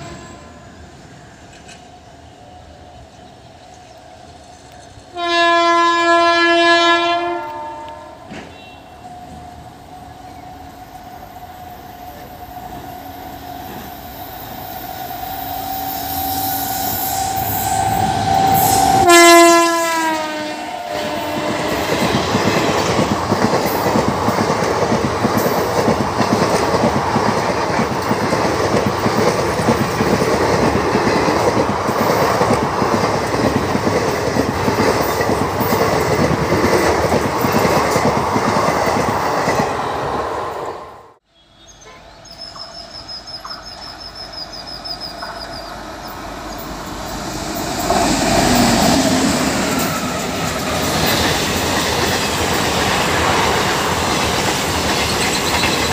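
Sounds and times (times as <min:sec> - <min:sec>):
train air horn blast: 0:00.0 - 0:00.7, 0:05.1 - 0:09.0, 0:15.4 - 0:22.9
train wheels clickety-clack: 0:01.5 - 0:02.0, 0:20.9 - 0:39.8, 0:45.0 - 0:55.9.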